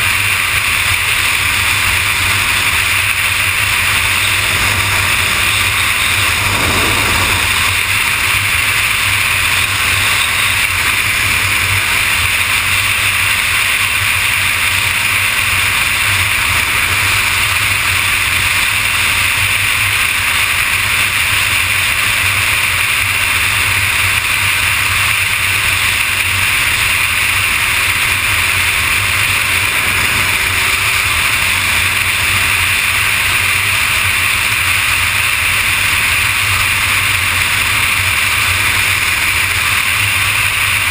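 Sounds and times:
motorcycle engine cruising: 0.0s - 40.9s
wind rush on microphone: 4.0s - 9.4s.

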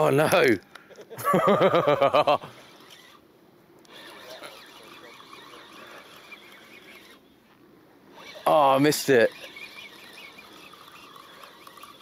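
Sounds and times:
fishing reel rasping: 2.6s - 3.2s, 3.8s - 7.2s, 8.1s - 12.0s.

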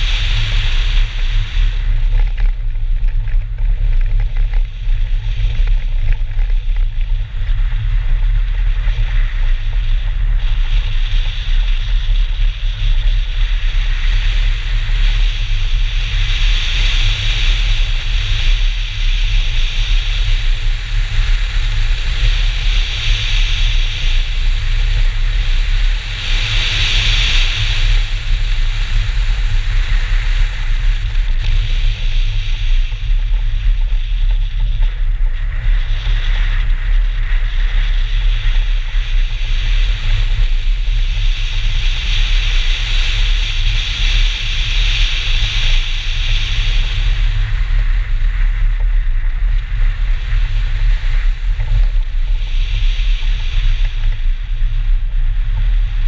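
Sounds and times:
tyre hiss and road noise: 0.0s - 56.0s
wind buffeting microphone: 0.0s - 56.0s.

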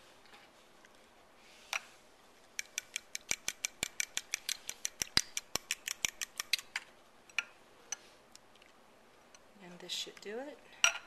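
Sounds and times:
fork clicking against glass bowl: 2.6s - 6.7s.

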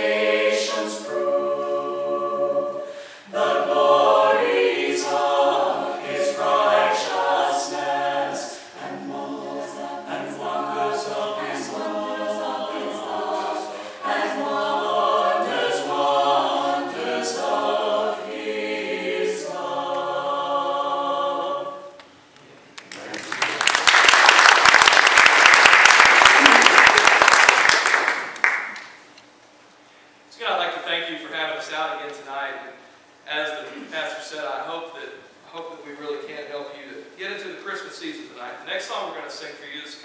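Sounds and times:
mixed choir singing in harmony: 0.0s - 22.0s.

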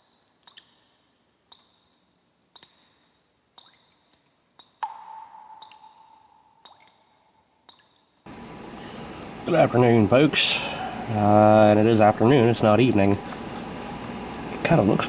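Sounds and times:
sharp ringing ticks: 0.0s - 8.3s
low ringing tone: 2.8s - 8.2s.

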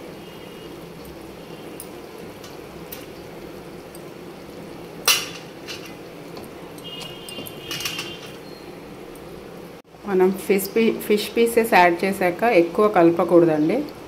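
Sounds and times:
utensil clinking on a pot: 5.0s - 8.5s.

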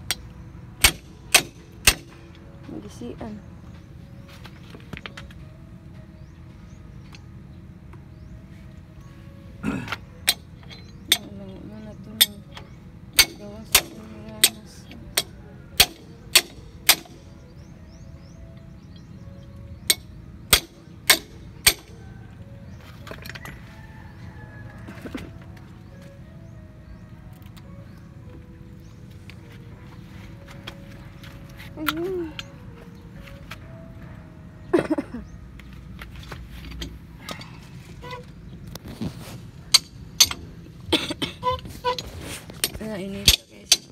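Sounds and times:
sharp metal strikes ringing: 0.8s - 2.4s, 13.2s - 17.3s, 19.9s - 22.1s.

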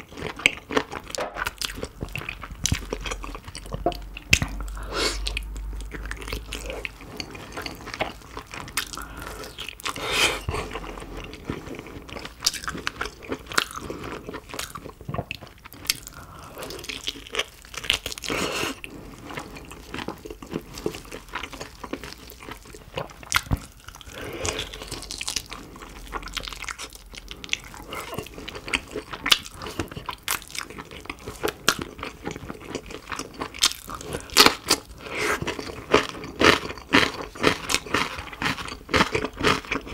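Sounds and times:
crunchy chewing: 0.0s - 39.9s
wet mouth sounds: 1.2s - 10.9s.

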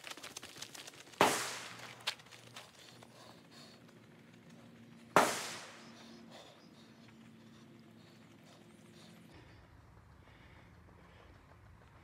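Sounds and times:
gunshots echoing: 1.2s - 1.8s, 5.1s - 5.9s.

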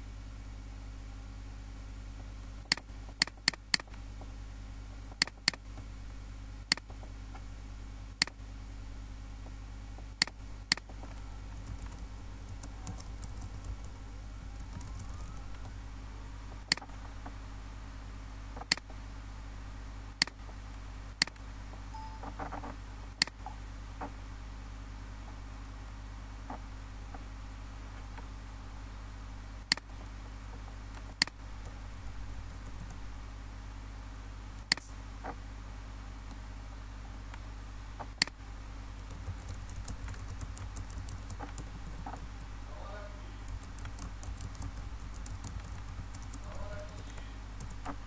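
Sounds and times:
steady low hum: 0.0s - 48.0s
mouse clicks: 2.7s - 4.0s, 29.7s - 29.9s, 34.6s - 35.0s
keystroke ticking: 11.6s - 14.0s, 14.6s - 15.7s, 39.0s - 42.6s, 43.4s - 48.0s.

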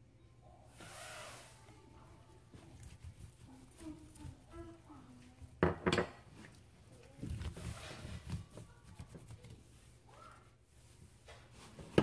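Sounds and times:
wet rubbing and squishing: 2.4s - 5.6s, 6.3s - 12.0s.

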